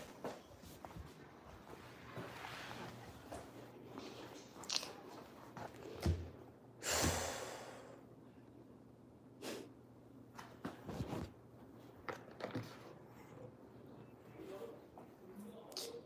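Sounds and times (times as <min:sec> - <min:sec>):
fabric rubbing over microphone: 0:01.7 - 0:03.3.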